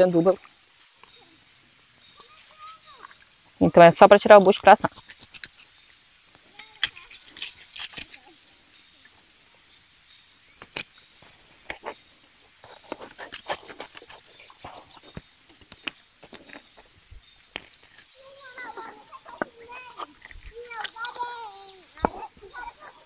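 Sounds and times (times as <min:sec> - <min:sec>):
faint high insect hiss: 0:00.0 - 0:23.0
knife scraping fish: 0:12.6 - 0:14.5.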